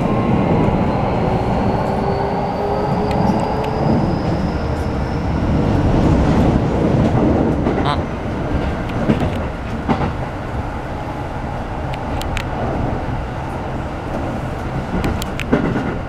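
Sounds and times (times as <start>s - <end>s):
train rumbling on rails: 0.0s - 16.0s
sharp clicks: 11.9s - 12.6s, 15.0s - 15.7s.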